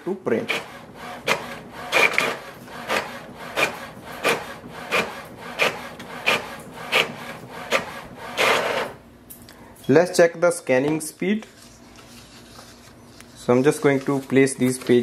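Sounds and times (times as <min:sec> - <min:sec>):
printer carriage swishing rasp: 0:00.3 - 0:09.0.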